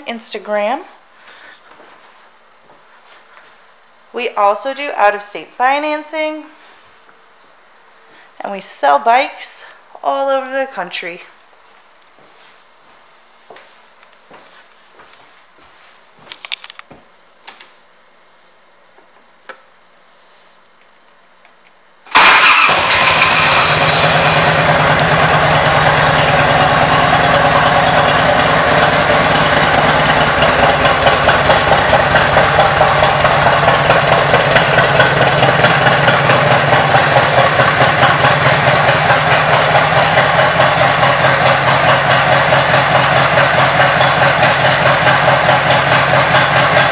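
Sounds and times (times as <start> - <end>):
motorcycle engine idling: 22.1 - 46.9.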